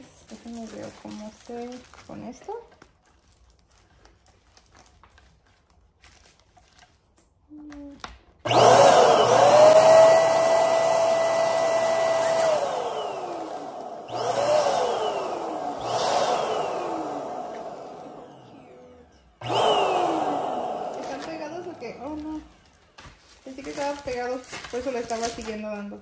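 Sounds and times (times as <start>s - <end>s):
electric balloon pump motor: 8.4s - 22.8s.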